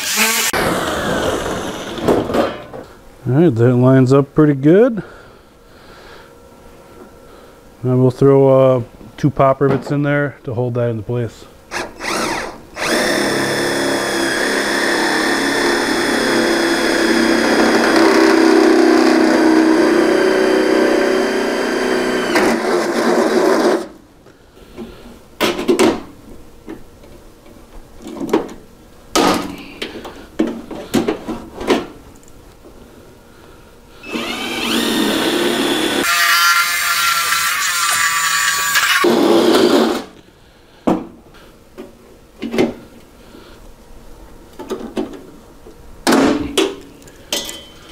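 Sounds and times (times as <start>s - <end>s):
drill boring through sheet metal: 0.0s - 2.0s, 11.7s - 23.9s, 34.0s - 40.0s.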